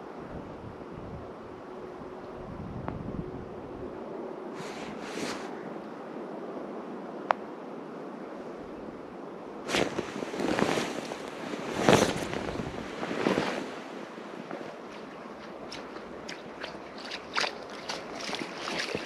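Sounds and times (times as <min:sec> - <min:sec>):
wind on microphone: 0:00.0 - 0:05.8, 0:07.8 - 0:19.0
short rustling bursts: 0:04.6 - 0:05.6, 0:09.7 - 0:19.0.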